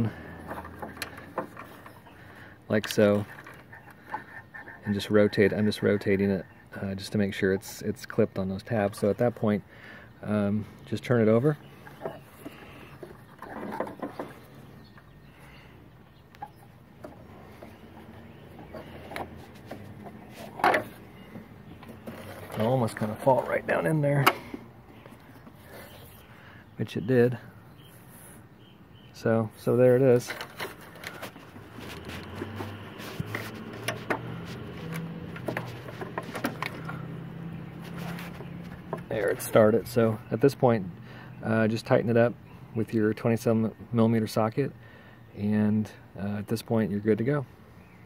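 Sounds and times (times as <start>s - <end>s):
faint rustling: 29.6s - 40.0s.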